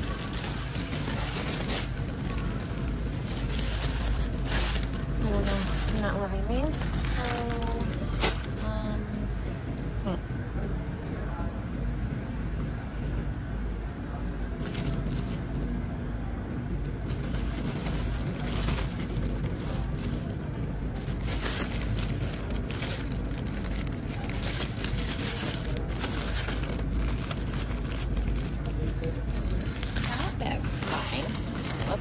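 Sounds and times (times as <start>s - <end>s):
bags of potatoes crinkling: 0.0s - 8.8s, 14.6s - 15.4s, 17.0s - 32.0s
steady low rumble: 0.0s - 32.0s.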